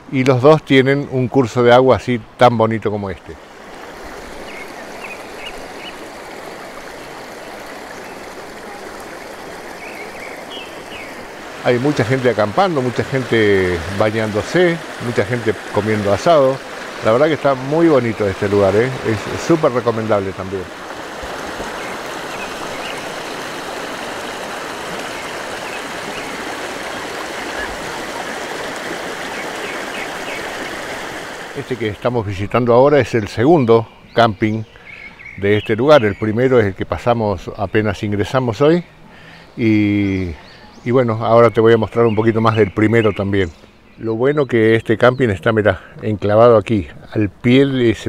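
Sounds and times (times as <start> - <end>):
creek babbling over rocks: 0.0 - 33.4.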